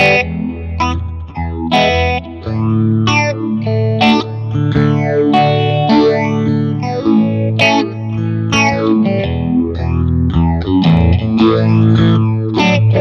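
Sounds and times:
electric guitar with phaser: 0.0s - 13.0s.

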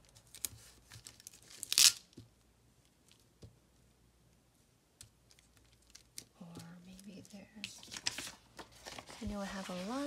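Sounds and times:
paper rustling: 5.3s - 10.0s.

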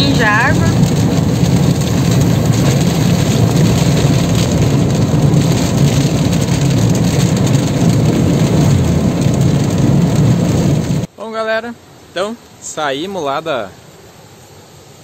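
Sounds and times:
car engine and road noise: 0.0s - 11.1s
heavy rain on vehicle: 0.0s - 11.1s.

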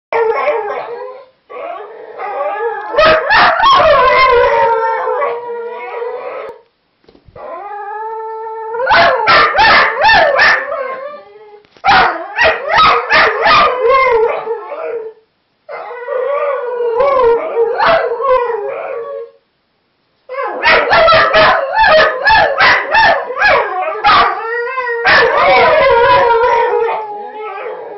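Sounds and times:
dogs howling: 0.2s - 6.6s, 7.4s - 19.4s, 20.3s - 27.9s
dogs yipping: 20.5s - 24.5s.

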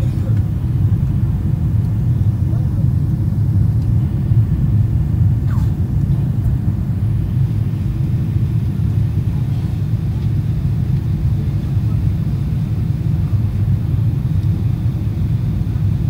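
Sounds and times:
airliner cabin rumble: 0.0s - 16.0s.

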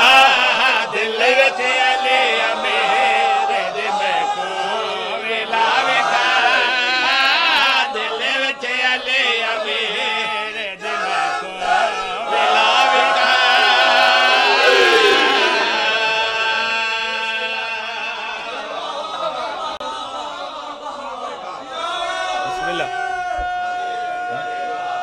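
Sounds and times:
men chanting together: 0.0s - 18.7s.

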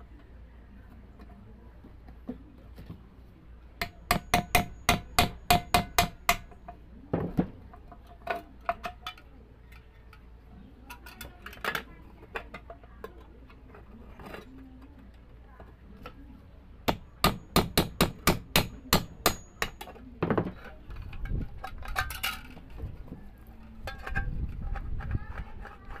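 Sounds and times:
hammer striking nail into tin can: 3.8s - 6.6s, 16.9s - 19.9s.

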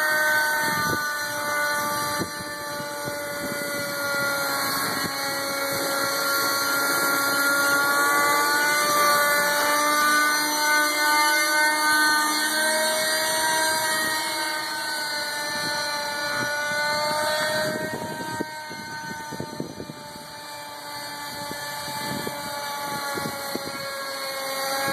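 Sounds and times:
model helicopter engine whining: 0.0s - 24.9s.

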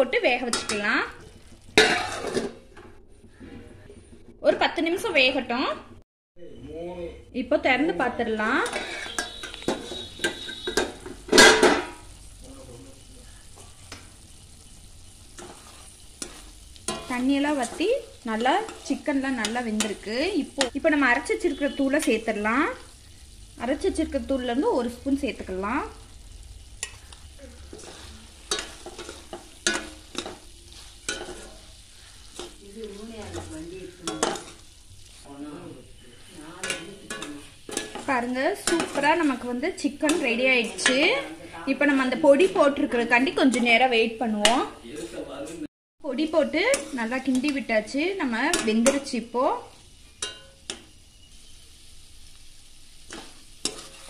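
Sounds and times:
chicken sizzling in pan: 0.0s - 2.8s, 8.3s - 54.0s
metal lid clatter: 1.8s - 2.6s, 8.6s - 12.0s
metal lid clinking: 1.8s - 2.6s, 8.6s - 12.0s, 27.7s - 30.4s, 31.1s - 31.6s, 34.0s - 34.6s, 50.2s - 50.8s
metal spatula clacking on pan: 8.6s - 12.0s, 26.8s - 34.7s, 36.6s - 39.4s, 40.1s - 41.2s, 46.7s - 47.7s, 48.5s - 49.2s, 50.2s - 50.9s, 53.1s - 54.0s.

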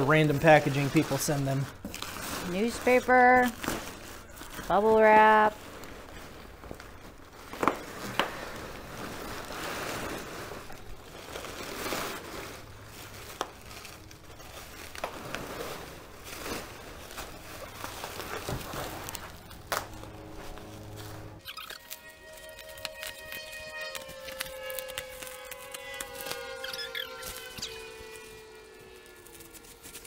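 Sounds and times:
bubble wrap rustling: 0.0s - 30.0s
paper packing rustling: 0.0s - 30.0s.

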